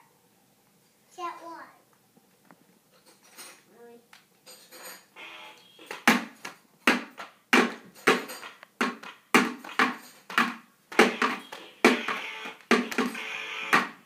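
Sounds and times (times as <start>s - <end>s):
child drumming: 6.0s - 14.0s.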